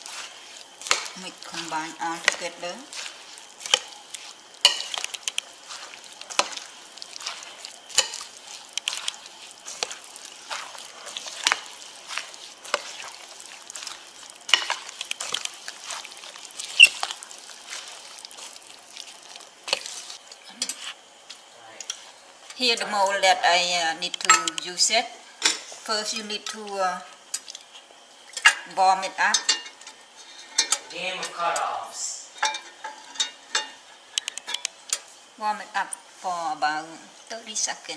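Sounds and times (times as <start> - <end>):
spoon stirring wet batter: 0.0 - 22.6.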